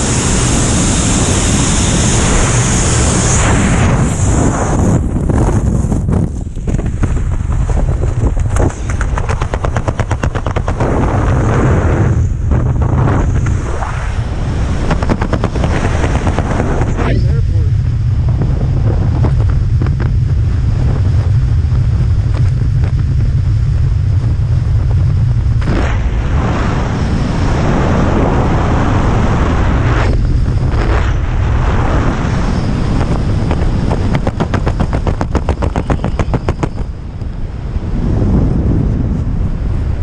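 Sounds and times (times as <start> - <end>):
wind buffeting microphone: 0.0 - 40.0
rapid crackling pops: 6.1 - 13.6, 14.8 - 17.0, 33.0 - 37.0.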